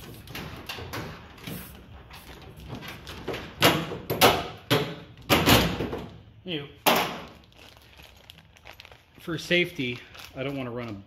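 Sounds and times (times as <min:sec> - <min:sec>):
plastic bag rustling: 0:07.2 - 0:11.0.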